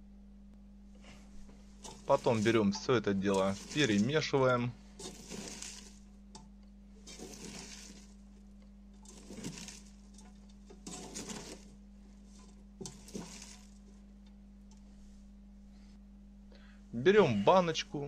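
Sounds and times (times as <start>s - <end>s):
steady low hum: 0.0s - 18.0s
vegetables rustling in a pot: 1.0s - 6.1s, 7.0s - 14.1s.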